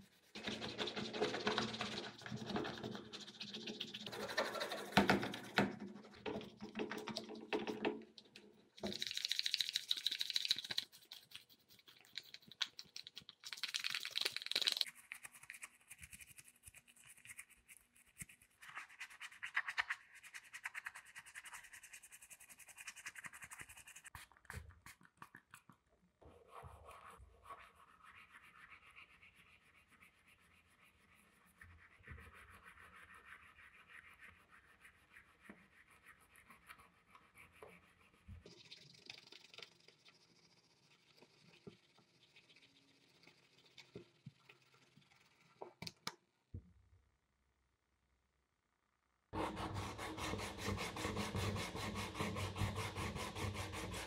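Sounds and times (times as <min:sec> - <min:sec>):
wet scrubbing of plastic parts: 0:00.0 - 0:19.5
toothbrush scrubbing plastic: 0:00.0 - 0:46.0, 0:49.4 - 0:54.0.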